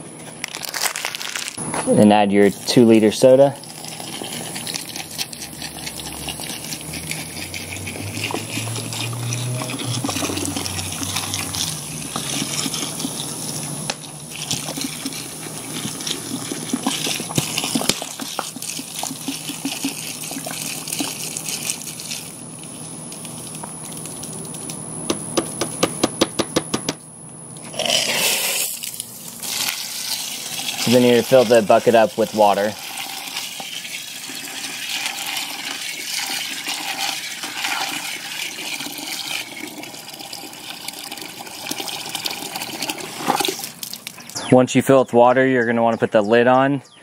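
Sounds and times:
liquid pouring onto corn kernels: 3.0 - 24.2, 28.2 - 44.3.

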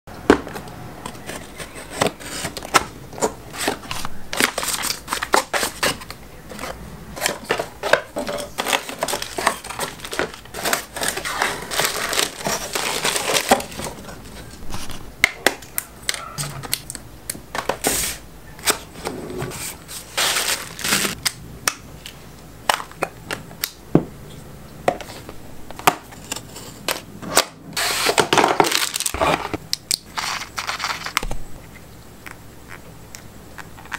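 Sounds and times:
cardboard packaging rubbing and crinkling: 1.0 - 15.1, 17.7 - 21.2, 27.8 - 31.6.

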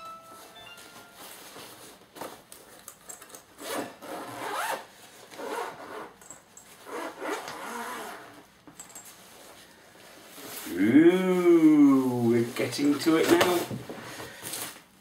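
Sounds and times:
zipper rasping open: 3.6 - 6.2, 6.8 - 8.4.

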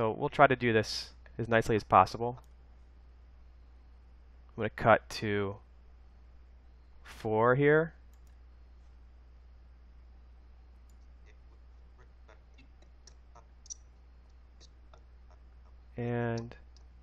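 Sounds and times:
low electrical hum: 0.0 - 17.0
computer mouse clicks: 8.1 - 8.4.

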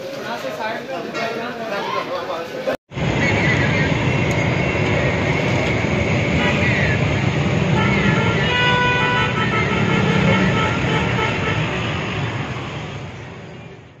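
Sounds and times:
rumble of passing vehicles: 2.9 - 14.0
faint car horns: 7.6 - 12.5.

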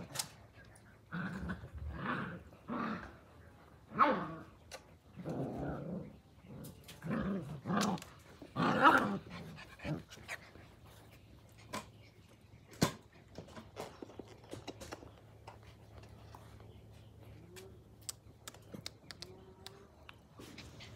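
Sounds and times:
puppies growling and barking: 0.0 - 12.0.

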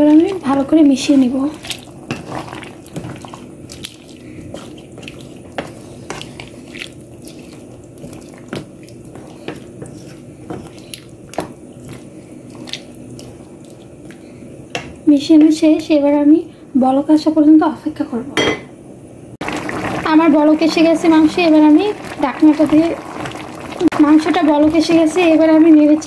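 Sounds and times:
curry squishing and sloshing: 0.0 - 15.1, 19.4 - 26.0.

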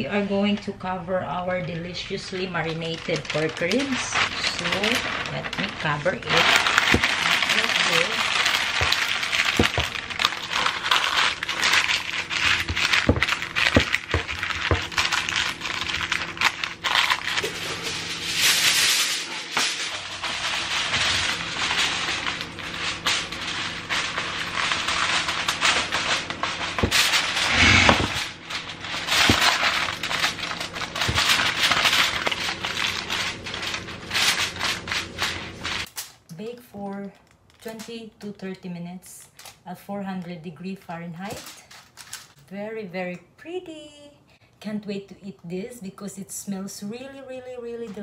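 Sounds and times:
aluminium foil crinkling: 1.7 - 42.4
parchment paper crinkling: 1.8 - 36.2, 41.2 - 42.4.

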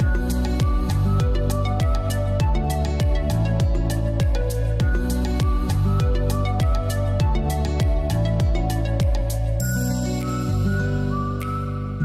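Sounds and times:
kick drum thuds: 0.0 - 9.3
background music with beat: 0.0 - 12.0.

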